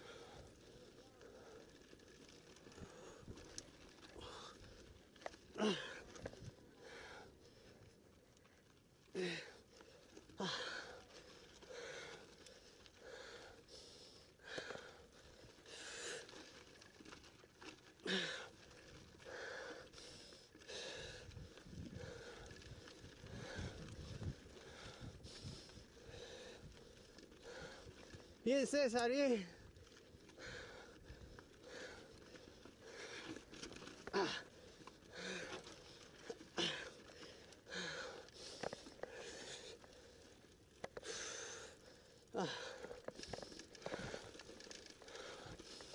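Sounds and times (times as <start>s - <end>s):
person breathing hard: 6.8s - 7.8s, 9.2s - 16.4s, 18.0s - 18.6s, 19.2s - 28.4s, 30.4s - 45.9s.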